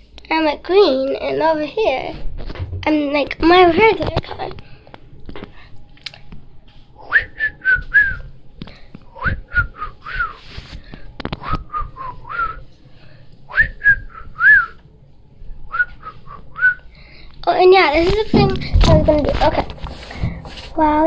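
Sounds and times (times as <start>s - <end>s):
girl whistling: 13.5s - 14.8s, 15.7s - 16.8s.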